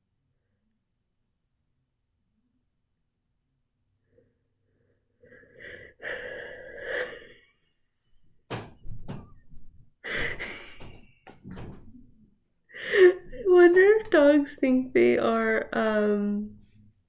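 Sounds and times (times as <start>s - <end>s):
woman laughing: 10.1s - 11.3s.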